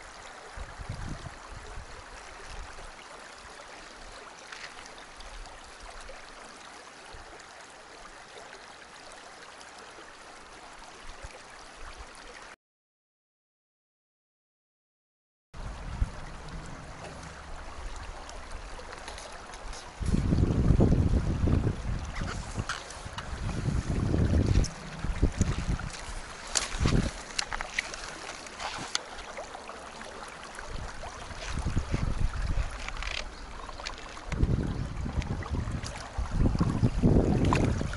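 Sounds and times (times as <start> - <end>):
stream running over stones: 0.0 - 12.6, 15.6 - 37.9
wind buffeting microphone: 0.6 - 2.0, 15.6 - 18.8, 19.6 - 27.8, 30.6 - 37.9
soft low bumps: 23.1 - 27.8.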